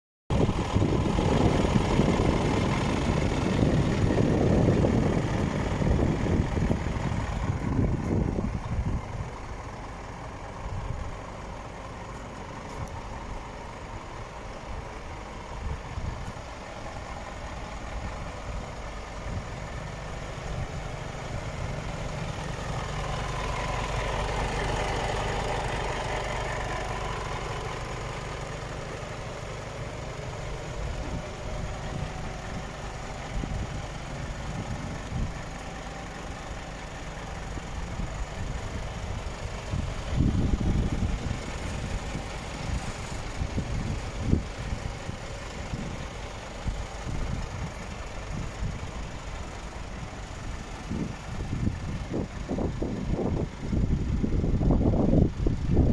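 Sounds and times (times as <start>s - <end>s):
diesel truck idling: 0.3s - 55.9s.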